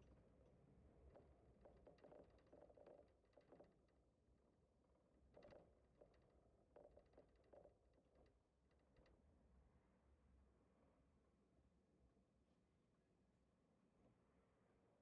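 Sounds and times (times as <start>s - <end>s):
small clicks and rattles: 1.0s - 9.3s.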